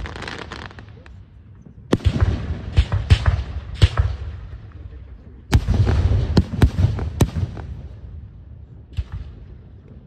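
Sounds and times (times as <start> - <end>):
fireworks bangs and cracks: 0.0 - 1.1, 5.5 - 8.0.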